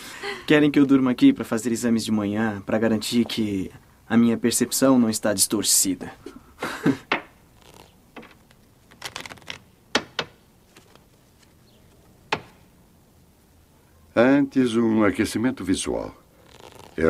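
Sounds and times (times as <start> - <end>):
playing cards flicking and tapping: 7.1 - 12.6
cards rustling: 7.6 - 9.8, 10.6 - 12.2.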